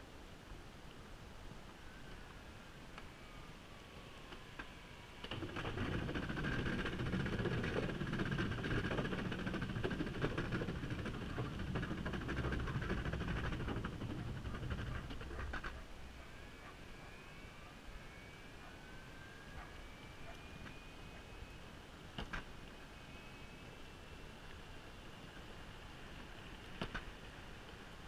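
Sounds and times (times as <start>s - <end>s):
skateboard wheels rumbling on wooden planks: 5.3s - 15.8s.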